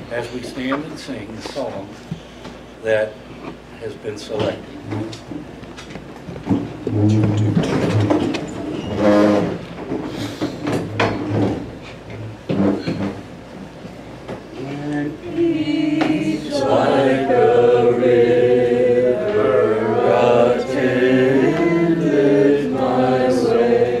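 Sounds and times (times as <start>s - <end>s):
congregation singing a hymn: 14.5s - 24.0s.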